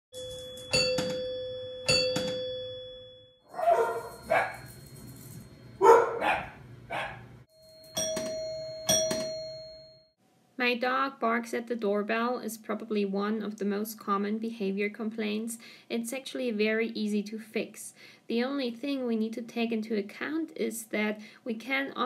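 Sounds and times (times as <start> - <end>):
two-note doorbell chime: 0.2 - 5.9, 7.5 - 10.2
dog barking: 3.5 - 4.7, 5.8 - 7.3.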